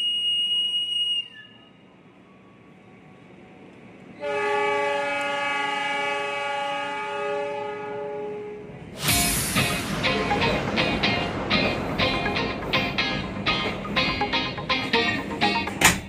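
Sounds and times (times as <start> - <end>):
locomotive air horn blast: 4.2 - 11.9
background music with a beat: 9.0 - 16.0.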